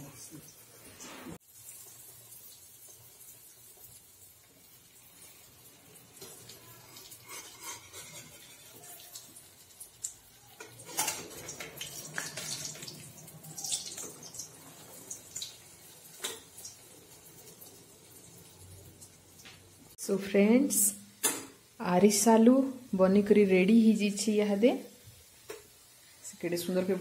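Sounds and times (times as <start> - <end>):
sweets sizzling in oil: 0.0 - 27.0
metal spoon clinking on pan: 10.5 - 12.9.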